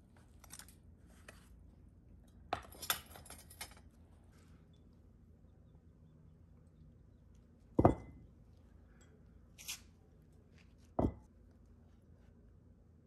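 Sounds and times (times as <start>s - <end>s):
metal dumbbells thudding on concrete: 7.8s - 8.2s, 11.0s - 11.2s.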